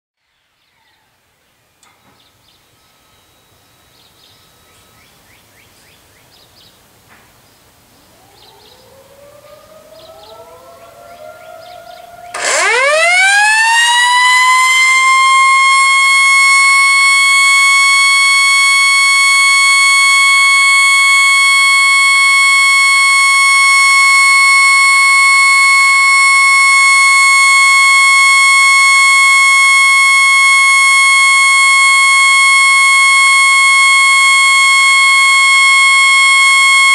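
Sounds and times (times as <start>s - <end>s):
electromechanical siren: 8.1s - 36.9s.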